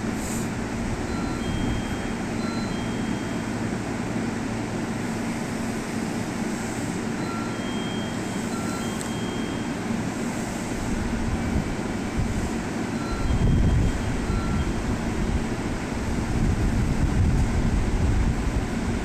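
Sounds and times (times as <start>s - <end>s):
train equipment humming: 0.0s - 19.0s
short high electronic tones: 1.1s - 3.6s, 7.2s - 9.8s, 13.0s - 14.9s.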